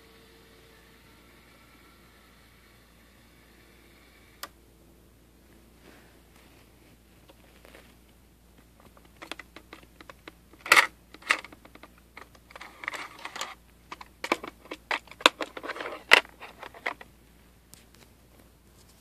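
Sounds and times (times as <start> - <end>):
plastic clicks and knocks: 8.8 - 17.1
cassette scraping into tape slot: 8.9 - 17.1.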